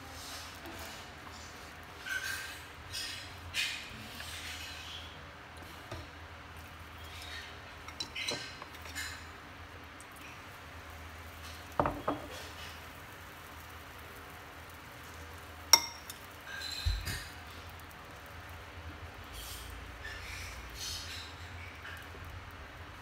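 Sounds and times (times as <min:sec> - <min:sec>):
spoon clinking against glass bowl: 0:15.8 - 0:16.2.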